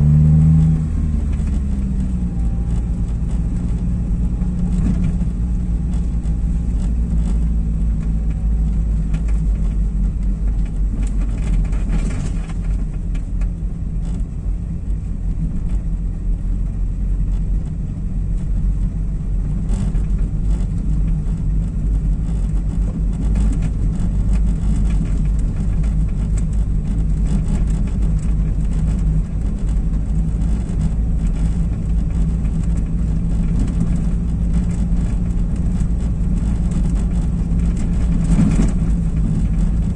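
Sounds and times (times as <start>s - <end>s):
tyre noise on brick paving: 0.0s - 16.4s
car engine drone: 0.0s - 39.9s.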